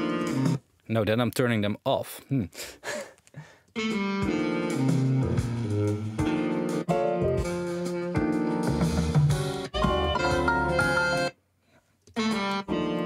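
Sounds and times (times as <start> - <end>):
guitar-led music through speakers: 0.0 - 0.6, 3.9 - 11.3
bass notes: 3.8 - 11.3.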